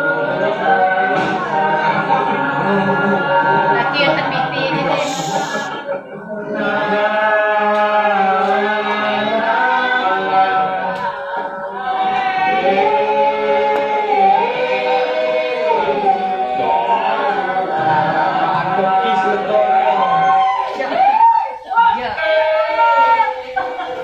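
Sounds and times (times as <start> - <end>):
voices singing slow song: 0.0 - 24.0.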